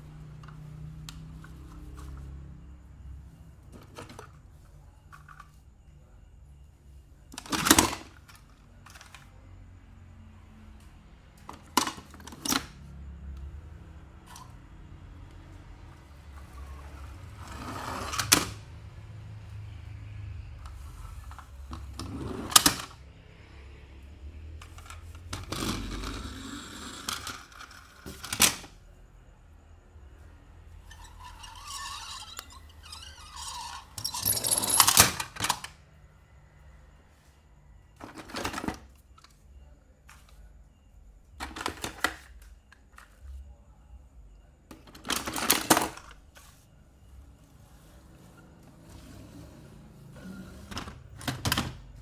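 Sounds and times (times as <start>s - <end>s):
toy cars clicking and clacking: 24.6s - 28.7s
rustling and scraping: 45.0s - 51.1s.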